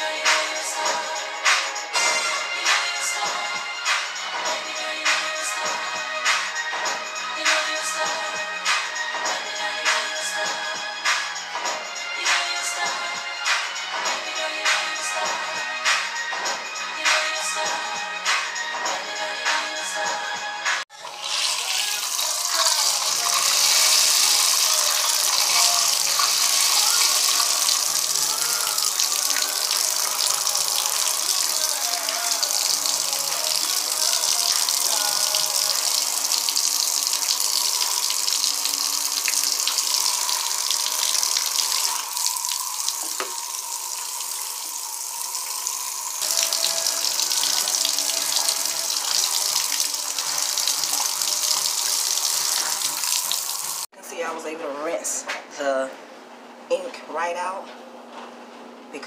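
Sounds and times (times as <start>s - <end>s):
shower spraying water on fabric: 21.0s - 53.9s.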